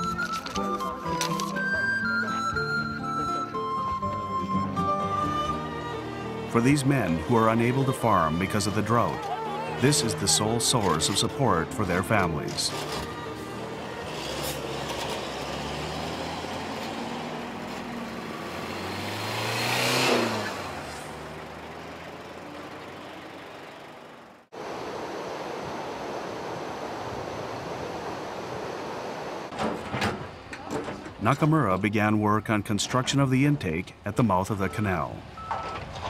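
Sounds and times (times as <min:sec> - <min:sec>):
truck engine driving past: 0:00.8 - 0:24.5.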